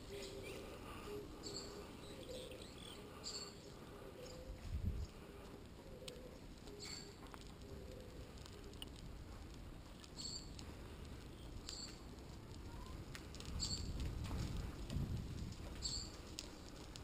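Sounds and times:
wind and tyre rumble: 4.3 - 17.0.

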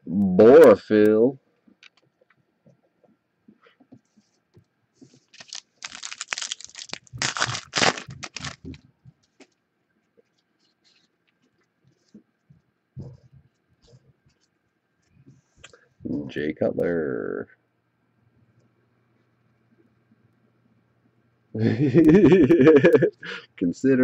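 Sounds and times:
wrapper crinkling and tearing: 5.3 - 8.8.

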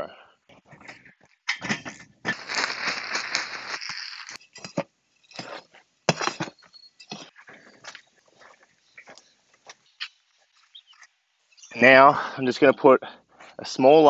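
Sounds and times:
potting mix rustling and scraping: 0.5 - 12.7
potting mix pouring: 2.3 - 4.7.

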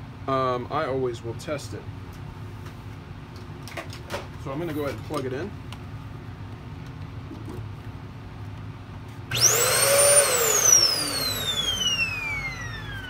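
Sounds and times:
vacuum motor whine: 9.3 - 13.0.

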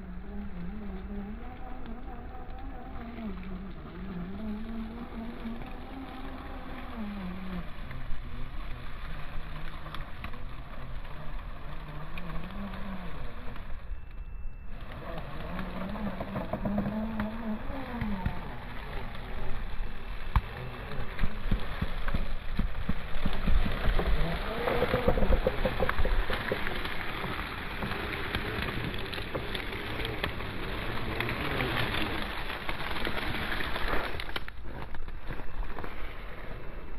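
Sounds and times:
dry grass crackling under tyres: 0.0 - 36.9
electric motor and gearbox whining: 0.0 - 36.9.

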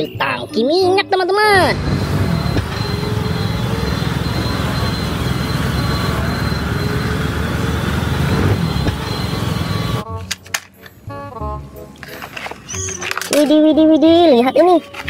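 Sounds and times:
truck engine running: 1.6 - 10.1.

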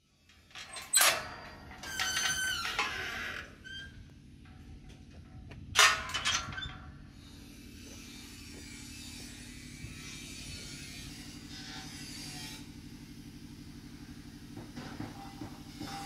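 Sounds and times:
metal gate clanking: 0.4 - 7.2
squealing gate hinge: 0.5 - 4.1, 5.8 - 7.0.

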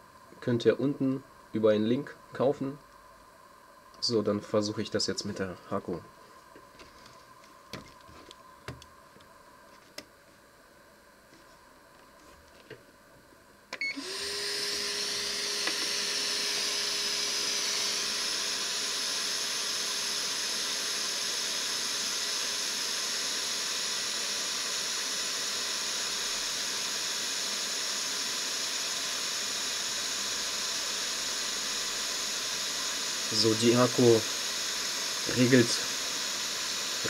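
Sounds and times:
compressor and blower humming: 0.0 - 37.0
air hissing from nozzle: 14.0 - 37.0.

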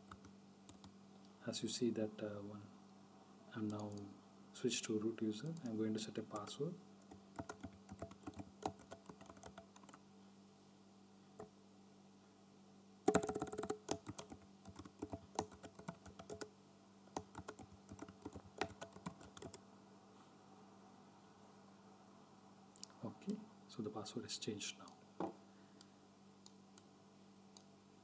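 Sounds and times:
computer keyboard keys clicking: 7.1 - 10.0, 13.1 - 16.5, 17.2 - 19.6.

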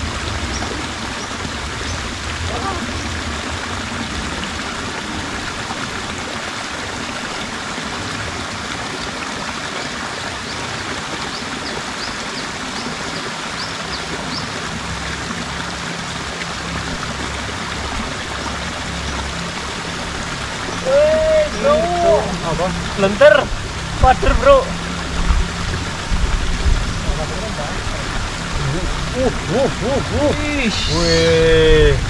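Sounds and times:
water rushing over rocks: 0.0 - 32.0.

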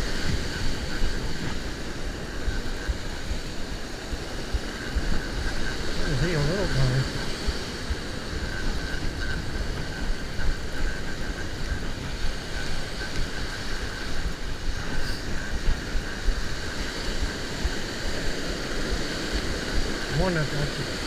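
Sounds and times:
surf breaking on beach: 0.0 - 21.0
wind buffeting microphone: 0.0 - 21.0.

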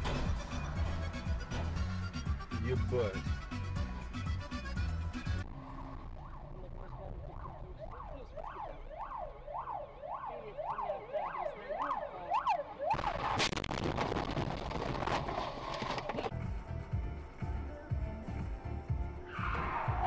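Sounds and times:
ambulance siren wailing: 5.4 - 13.4.

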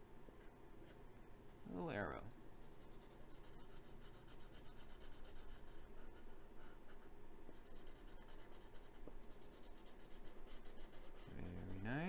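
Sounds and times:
marker scribbling on paper: 2.6 - 12.0.

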